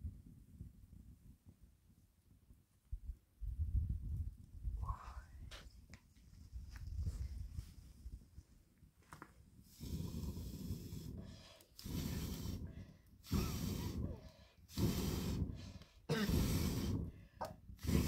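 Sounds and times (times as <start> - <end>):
person blowing into fire: 9.6 - 18.0
quick breaths: 9.7 - 18.0.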